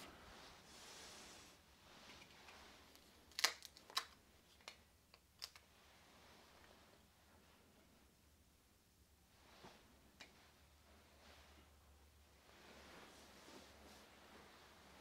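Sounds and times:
small sharp snaps and clicks: 3.3s - 5.7s.

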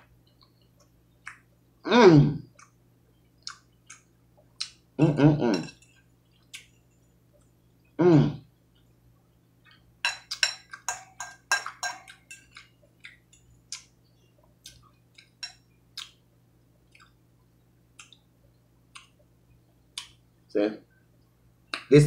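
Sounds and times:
chewing: 3.4s - 4.8s, 9.6s - 16.2s, 16.8s - 17.2s
fork clicking on ceramic bowl: 10.0s - 13.9s.

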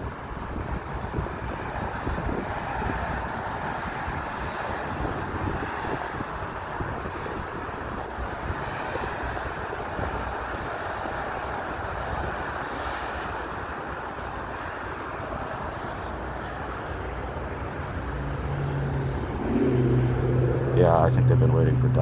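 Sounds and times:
road traffic rumble: 0.0s - 22.0s
approaching vehicle engine hum: 15.1s - 22.0s.

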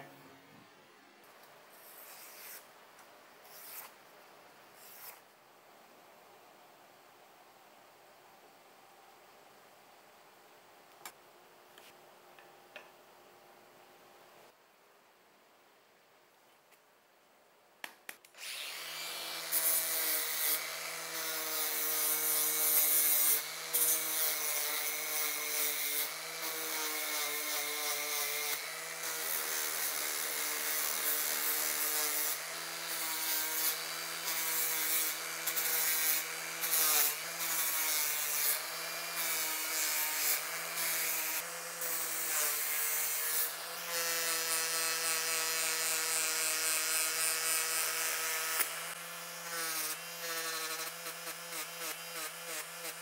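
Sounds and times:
angle grinder grinding steel: 18.4s - 53.0s.

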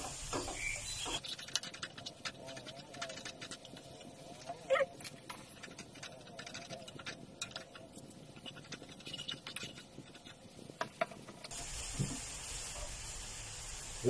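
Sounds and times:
paste frying in oil: 0.0s - 1.3s, 11.4s - 14.0s.

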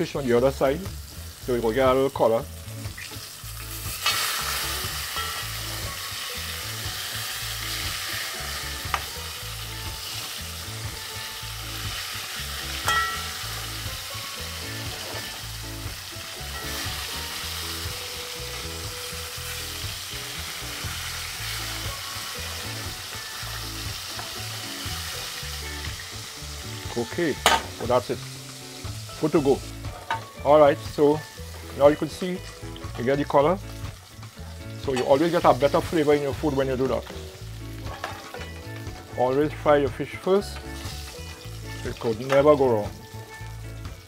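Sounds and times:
fish frying in hot oil: 0.0s - 30.2s, 30.9s - 44.0s
utensil clinking against pot: 12.8s - 13.4s.

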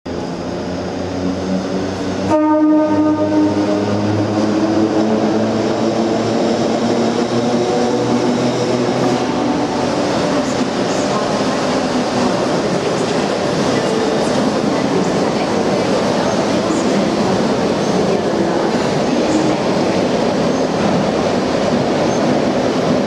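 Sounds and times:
electric train rumbling: 0.1s - 23.0s
train horn blast: 2.2s - 4.1s.

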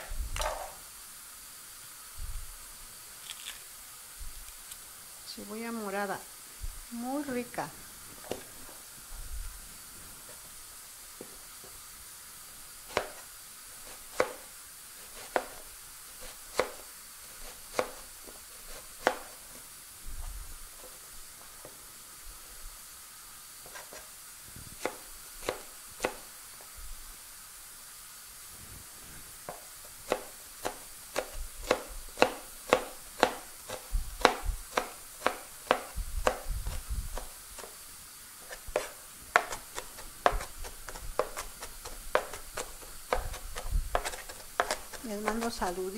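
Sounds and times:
knife chopping onion on plastic board: 12.8s - 19.6s, 23.6s - 24.1s, 24.8s - 26.3s, 29.5s - 37.8s, 38.4s - 45.9s.

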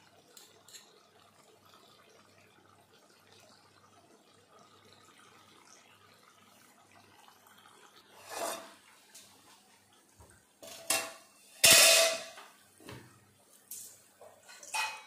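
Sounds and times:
metal pots and ladle clanking: 8.2s - 8.8s, 10.6s - 12.4s, 14.4s - 15.0s.

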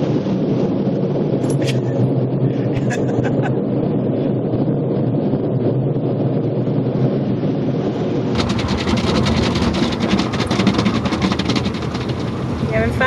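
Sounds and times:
car wash machinery rumble: 0.0s - 13.0s
water spray pattering on car: 8.4s - 13.0s.

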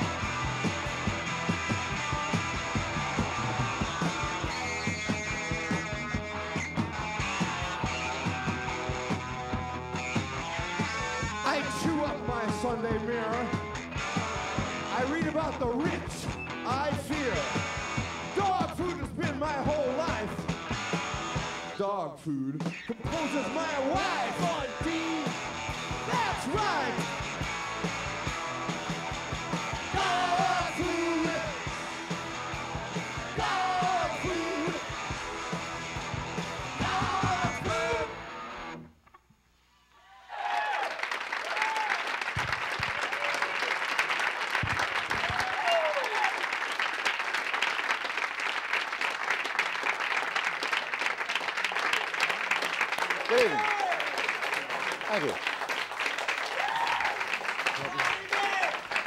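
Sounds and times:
punk rock band playing: 0.0s - 21.8s, 22.7s - 38.9s
man yelling and singing: 11.4s - 13.6s, 14.9s - 17.5s, 18.3s - 20.4s, 21.8s - 25.4s, 26.0s - 27.0s, 29.8s - 31.7s, 33.2s - 34.9s, 36.7s - 38.2s
audience applauding: 40.3s - 59.0s.

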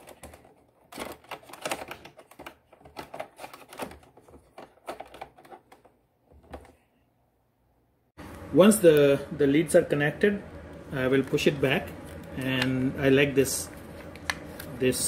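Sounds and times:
hands clicking and scraping plastic: 0.0s - 6.8s.

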